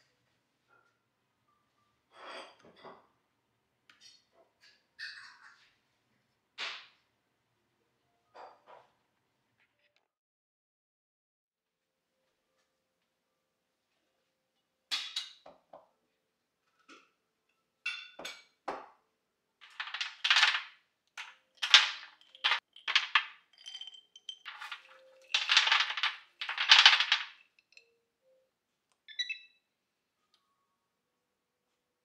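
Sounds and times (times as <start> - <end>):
nuts rattling onto baking tray: 19.6 - 27.4
glass jar clinking: 19.6 - 27.9.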